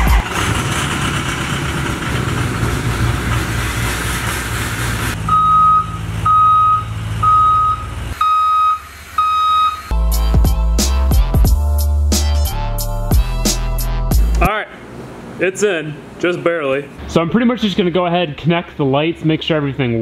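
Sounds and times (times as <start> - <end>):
vehicle rumble: 0.0 - 10.0
reversing alarm beeps: 5.3 - 9.9.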